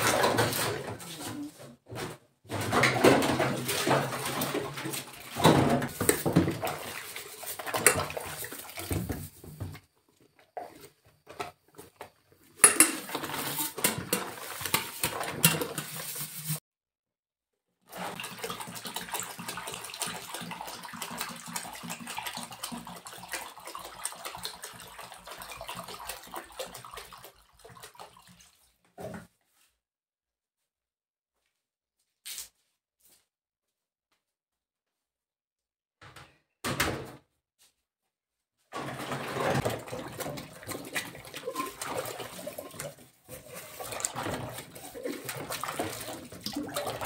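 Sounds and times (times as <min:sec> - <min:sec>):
pots and dishes clattering: 0:00.0 - 0:01.4, 0:02.0 - 0:09.3, 0:12.6 - 0:16.2
water pouring into plastic basin: 0:02.8 - 0:09.2, 0:17.9 - 0:28.7, 0:38.7 - 0:47.0.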